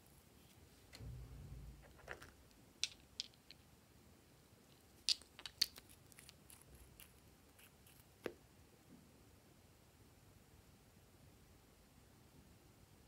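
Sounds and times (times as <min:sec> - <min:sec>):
cosmetic containers clicking: 0:01.8 - 0:03.6, 0:05.0 - 0:06.6.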